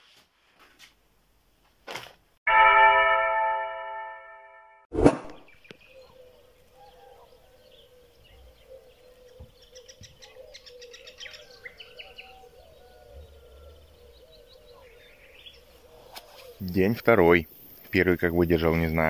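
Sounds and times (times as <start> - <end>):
birds chirping: 5.3 - 19.0.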